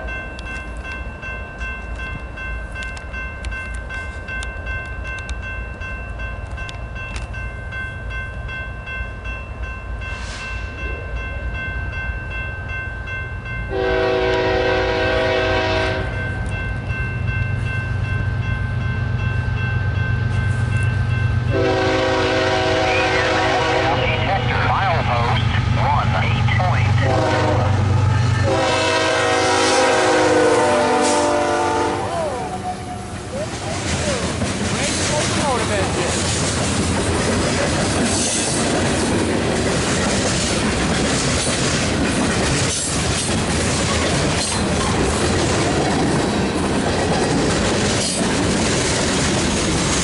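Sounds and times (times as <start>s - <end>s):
crossing bell ringing: 0.0s - 36.8s
train low rumble: 0.0s - 50.0s
train horn blast: 13.7s - 16.2s, 21.5s - 25.7s, 26.9s - 33.1s.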